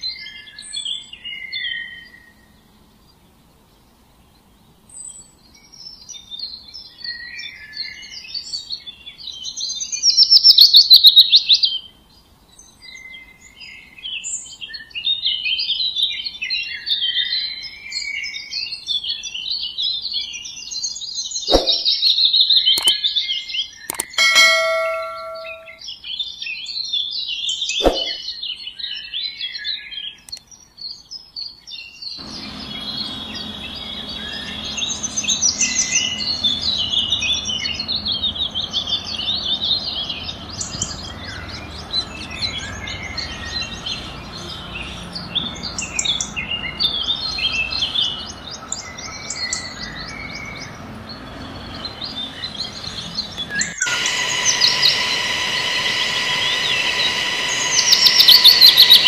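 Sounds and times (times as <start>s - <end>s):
small birds chirping: 29.6s - 59.0s
steady high hum: 51.8s - 59.0s.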